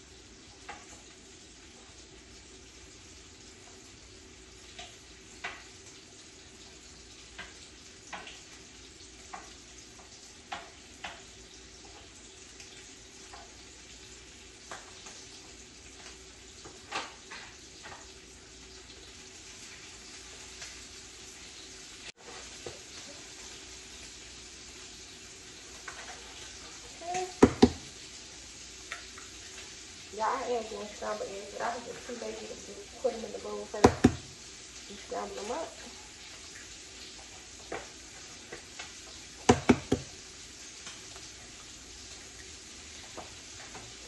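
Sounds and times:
butter sizzling in a frying pan: 0:00.0 - 0:44.0.

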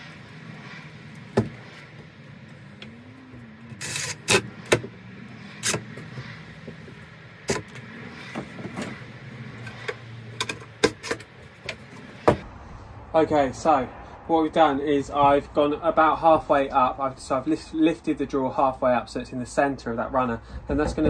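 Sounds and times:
cordless drill whirring: 0:03.7 - 0:05.8.

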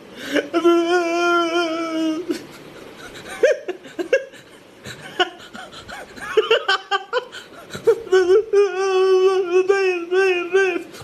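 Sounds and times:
man laughing and snickering: 0:00.2 - 0:11.0
man wailing: 0:00.3 - 0:02.5, 0:06.4 - 0:11.0.

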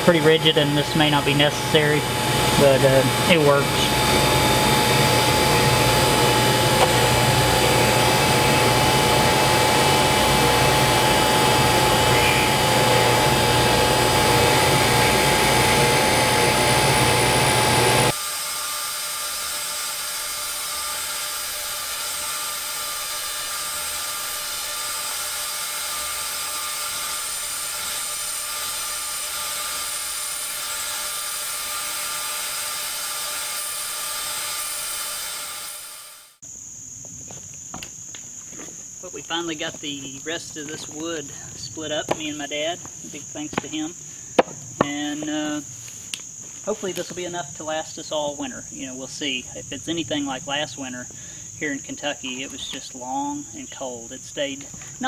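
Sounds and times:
grinder whirring with high whine: 0:00.0 - 0:36.4
steady hiss with thin high tones: 0:32.9 - 0:55.0.

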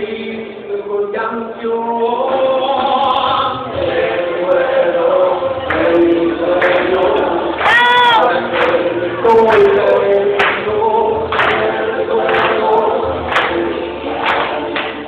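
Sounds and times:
group of voices chanting: 0:03.7 - 0:15.0.

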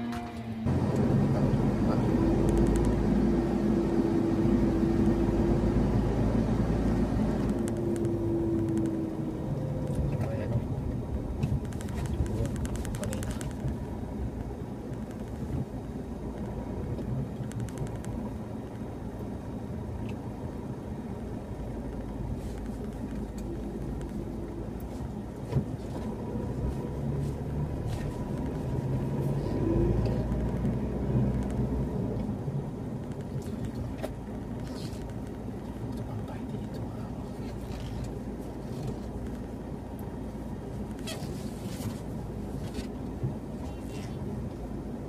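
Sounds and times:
car engine and tyre rumble: 0:00.0 - 0:45.0.

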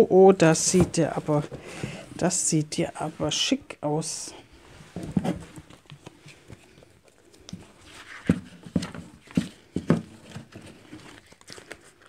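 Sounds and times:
cards being shuffled: 0:05.0 - 0:12.0.

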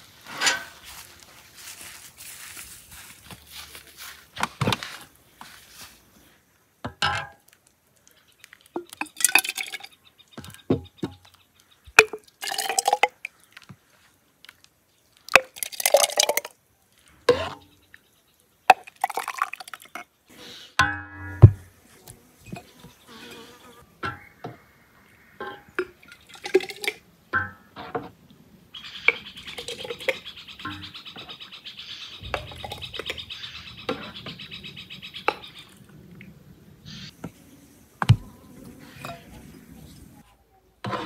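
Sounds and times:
glass jars clinking: 0:08.8 - 0:09.9, 0:12.0 - 0:13.2, 0:15.3 - 0:16.5, 0:32.3 - 0:33.2
liquid pouring into glass jar: 0:12.3 - 0:13.3, 0:15.3 - 0:16.5, 0:32.3 - 0:33.2.

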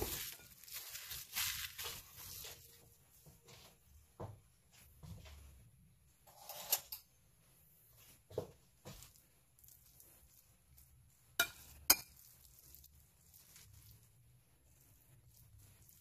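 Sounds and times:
spoon clinking on ceramic bowl: 0:11.4 - 0:12.3.

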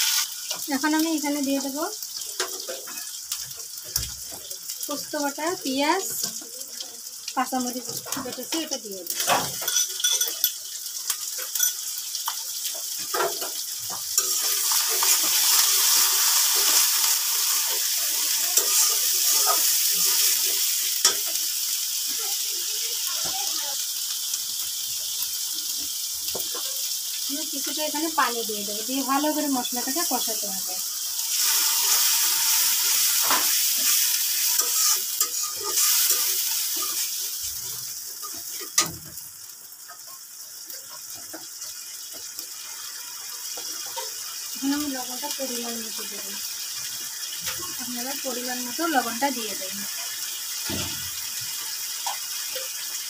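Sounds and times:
paste sizzling in hot oil: 0:00.0 - 0:53.0
spatula scraping a pan: 0:14.2 - 0:21.4, 0:31.3 - 0:38.9.

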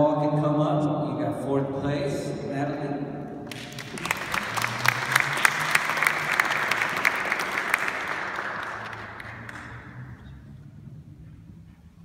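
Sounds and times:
audience applauding: 0:03.5 - 0:10.3.

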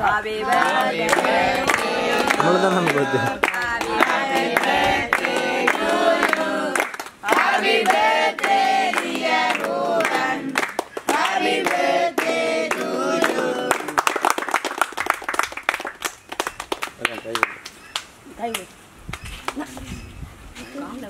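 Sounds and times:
boys singing in unison: 0:00.0 - 0:14.0
people clapping: 0:00.1 - 0:19.9.

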